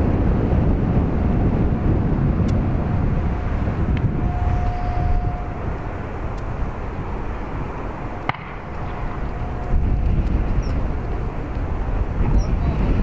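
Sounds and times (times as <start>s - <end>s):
distant jet airliner drone: 0.0s - 13.0s
wind buffeting microphone: 0.0s - 13.0s.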